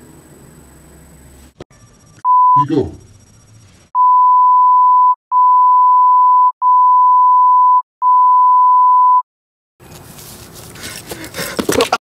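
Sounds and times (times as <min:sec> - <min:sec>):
long bleep tone: 0:01.8 - 0:03.0, 0:04.0 - 0:09.2.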